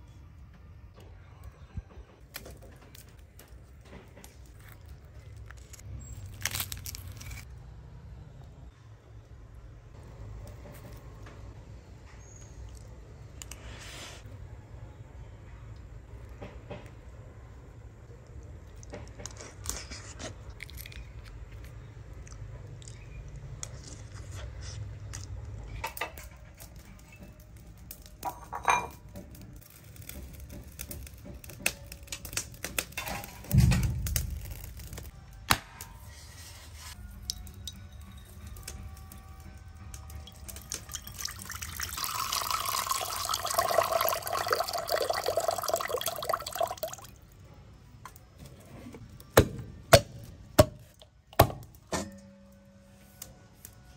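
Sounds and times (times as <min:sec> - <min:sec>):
water running: 0:40.2 - 0:47.1.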